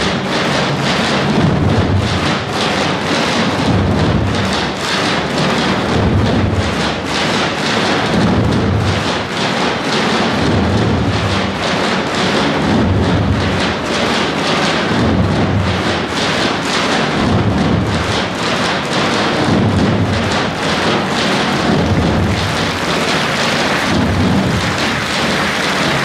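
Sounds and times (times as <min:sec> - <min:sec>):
deep booming bass drums: 0:00.0 - 0:26.0.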